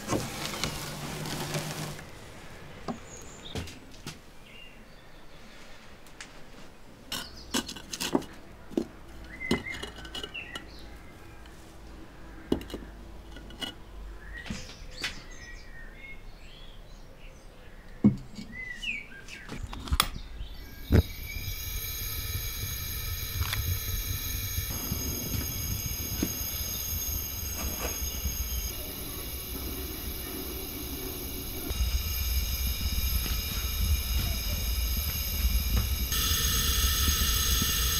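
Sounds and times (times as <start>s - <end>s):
gas burner roaring: 0.0s - 3.4s, 20.4s - 37.9s
birds chirping: 1.9s - 5.6s, 14.2s - 37.9s
ceramic jar knocking and scraping: 7.1s - 10.7s.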